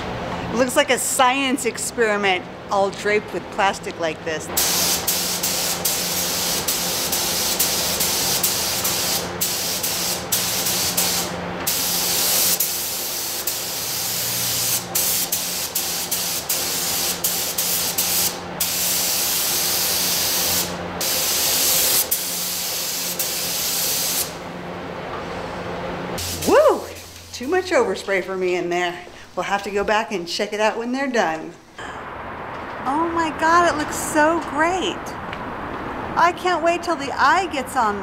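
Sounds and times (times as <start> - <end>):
spray gun hissing: 4.6 - 24.4, 26.2 - 27.2.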